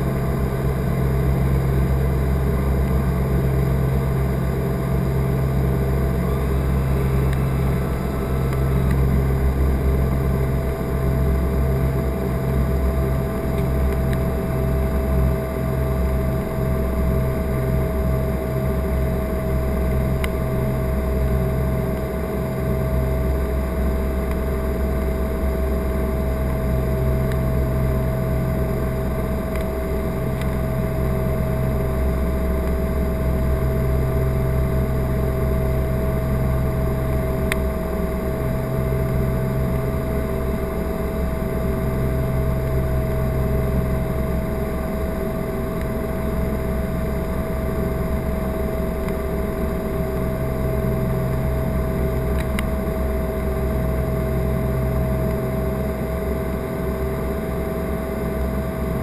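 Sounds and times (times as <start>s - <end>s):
propeller engines droning: 0.0s - 59.0s
steady high tone: 5.3s - 10.5s.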